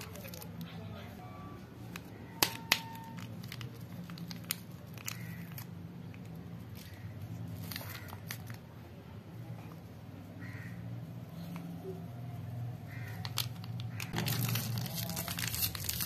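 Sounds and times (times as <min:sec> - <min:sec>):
paper packet crinkling and tearing: 0:02.4 - 0:08.7, 0:12.9 - 0:16.0.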